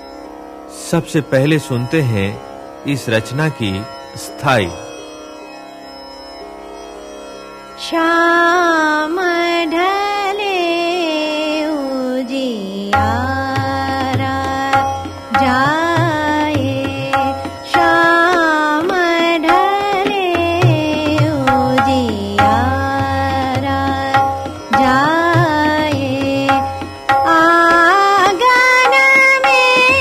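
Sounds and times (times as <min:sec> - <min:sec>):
tabla: 0:00.0 - 0:04.9, 0:08.3 - 0:30.0
person singing classical vocals: 0:07.8 - 0:30.0.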